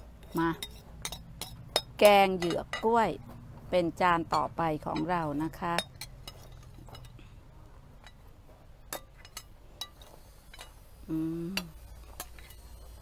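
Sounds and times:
tableware clinking: 0.3s - 3.0s.

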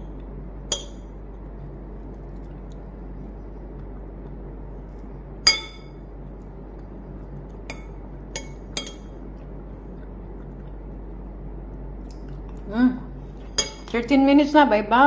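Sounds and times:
metal spoon clinking on plate: 5.4s - 6.0s, 7.7s - 9.1s, 13.6s - 14.0s.

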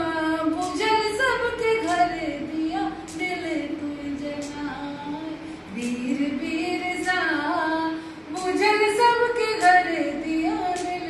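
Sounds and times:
woman singing unaccompanied: 0.0s - 11.0s.

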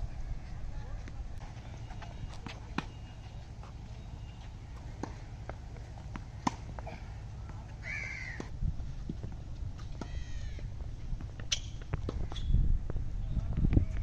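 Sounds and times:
tennis racket hitting ball: 4.8s - 7.1s.

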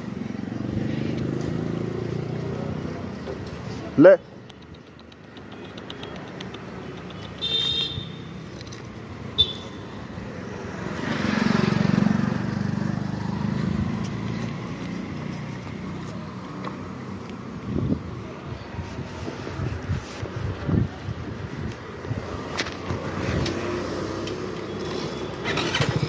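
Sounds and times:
vehicle passing close by: 10.1s - 20.2s, 22.0s - 26.0s.

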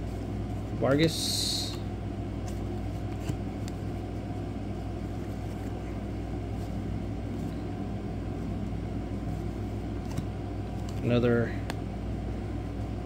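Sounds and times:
low background hum: 0.0s - 13.0s
cards clicking: 2.4s - 3.9s, 10.0s - 11.8s.

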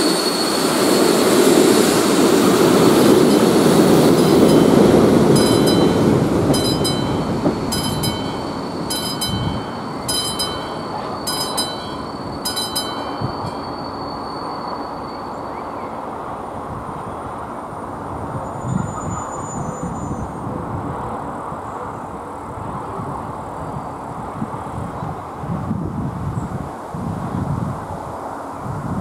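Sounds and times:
crossing warning bell ringing: 0.0s - 15.8s
train wheels rolling past: 0.0s - 17.5s.

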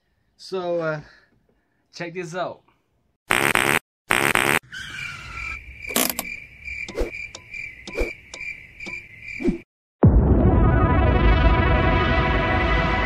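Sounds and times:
crickets chirping: 4.7s - 9.6s.

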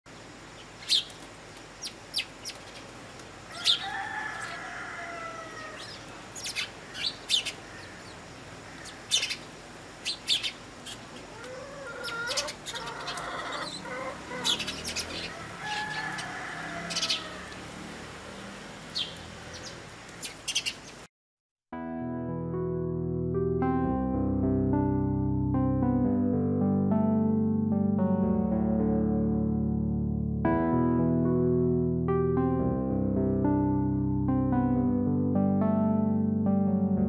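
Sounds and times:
sparrows chirping: 0.6s - 4.6s, 5.6s - 17.4s, 18.4s - 21.0s.

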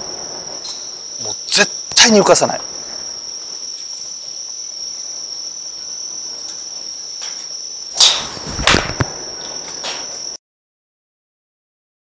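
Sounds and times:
insects trilling: 0.0s - 10.4s
golf ball struck crack: 7.9s - 9.2s.

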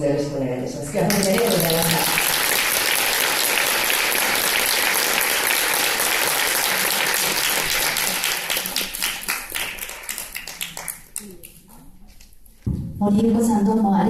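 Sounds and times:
audience applauding: 1.1s - 11.7s.

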